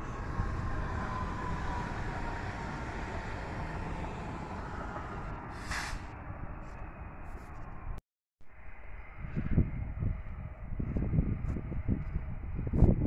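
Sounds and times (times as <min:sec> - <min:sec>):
train wheels rumbling on rail: 0:00.0 - 0:08.0
faint train whine: 0:00.0 - 0:13.0
brief hiss: 0:05.5 - 0:06.1.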